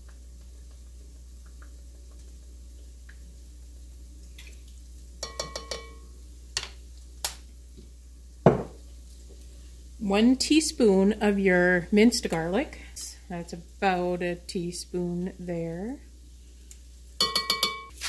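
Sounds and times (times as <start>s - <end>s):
spoon clinking against bowl: 5.2s - 6.0s, 17.2s - 17.9s.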